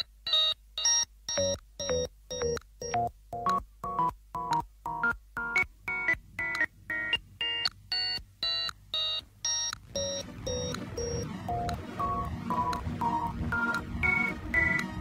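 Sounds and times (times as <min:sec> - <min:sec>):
synthesizer backing: 0:09.9 - 0:15.0
synthesizer staccato notes: 0:09.9 - 0:15.0.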